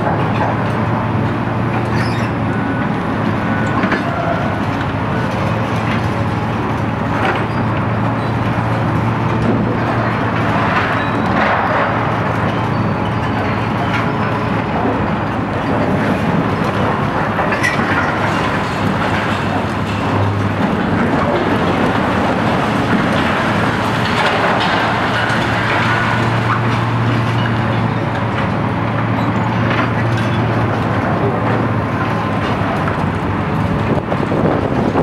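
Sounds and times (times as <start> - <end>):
diesel excavator engines: 0.0 - 35.0
concrete cracking and crunching: 15.7 - 28.5.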